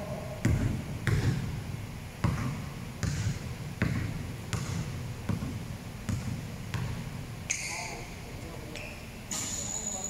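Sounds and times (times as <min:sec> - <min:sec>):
basketball bouncing in gym: 0:00.0 - 0:08.0.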